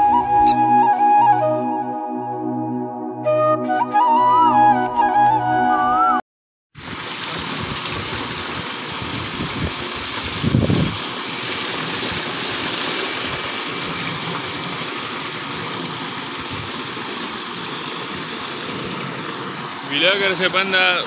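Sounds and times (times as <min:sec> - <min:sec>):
water splashing into a pool: 0:06.8 - 0:21.0.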